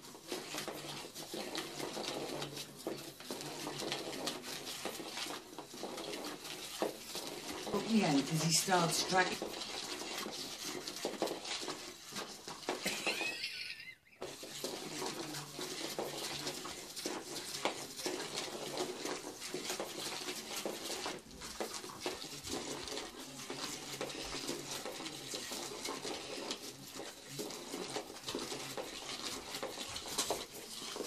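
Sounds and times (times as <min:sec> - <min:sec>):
rustling and scraping against fabric: 0:00.0 - 0:31.0.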